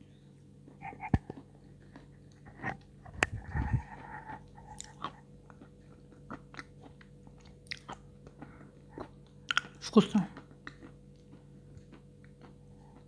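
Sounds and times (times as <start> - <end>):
chewing and lip smacks: 0.6 - 13.0
wet mouth clicks: 0.8 - 1.5, 4.3 - 5.2.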